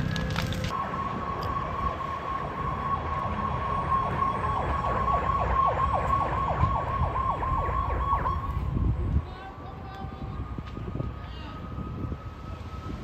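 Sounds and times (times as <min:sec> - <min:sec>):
engine and road rumble: 0:00.0 - 0:13.0
siren steady high tone: 0:00.0 - 0:13.0
siren falling whoops: 0:00.2 - 0:13.0.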